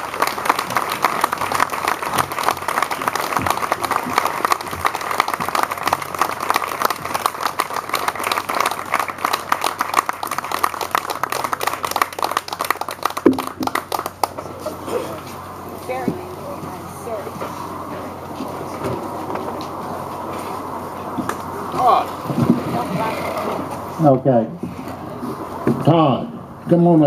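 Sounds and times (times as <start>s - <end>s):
audience applauding: 0.0s - 14.8s.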